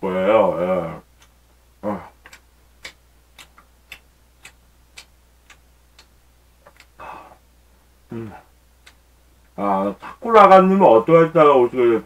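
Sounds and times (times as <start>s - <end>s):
soft ticking: 0.8s - 7.1s, 8.1s - 9.6s
man's voice: 9.6s - 12.0s.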